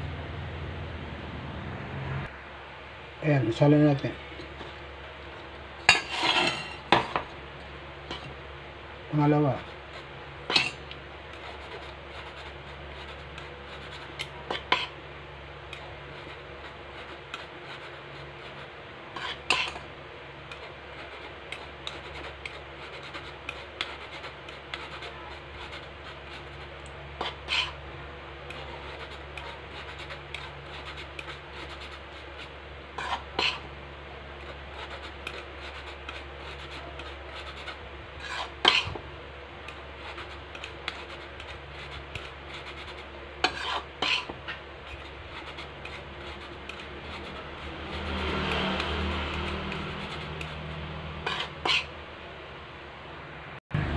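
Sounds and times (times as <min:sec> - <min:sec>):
flour rasping through a mesh sieve: 0:09.1 - 0:14.9, 0:15.8 - 0:19.8, 0:20.5 - 0:27.8, 0:28.4 - 0:33.6, 0:34.4 - 0:39.0, 0:39.7 - 0:51.9.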